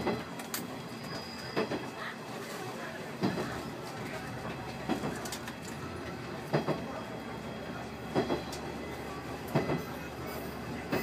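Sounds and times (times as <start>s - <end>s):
train running rumble: 0.0s - 11.0s
train wheels clacking over rail joints: 3.2s - 6.9s, 8.0s - 8.7s, 9.4s - 10.0s.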